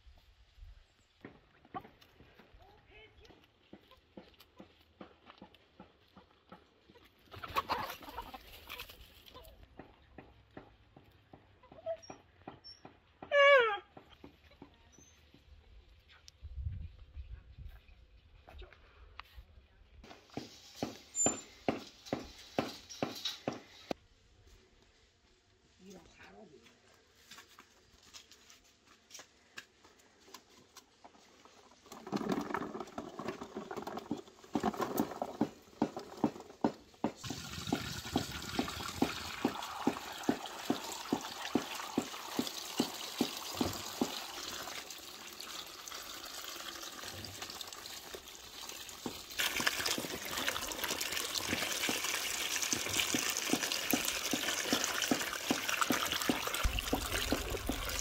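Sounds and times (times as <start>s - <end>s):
peppers rinsed and rubbed by hand: 27.0s - 58.0s
water running into a basin: 37.2s - 58.0s.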